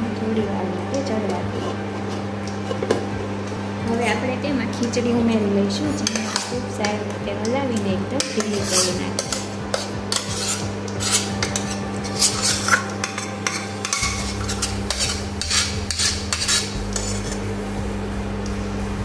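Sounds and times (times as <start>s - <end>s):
steel spoon scraping metal pots: 6.0s - 6.6s, 8.2s - 17.5s.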